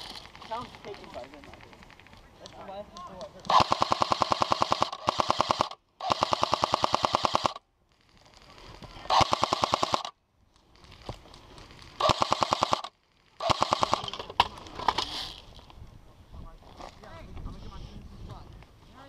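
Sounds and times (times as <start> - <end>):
airsoft gun firing bursts: 3.5 - 7.6, 9.1 - 10.1, 12.0 - 14.1.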